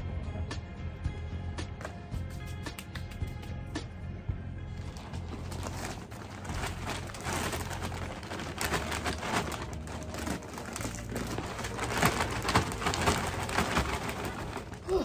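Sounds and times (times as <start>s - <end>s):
plastic bag crinkling: 4.7s - 15.0s.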